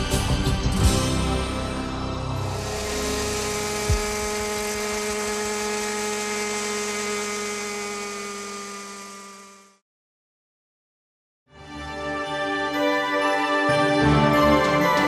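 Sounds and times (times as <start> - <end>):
rc helicopter engine and rotor whine: 2.4 - 9.8.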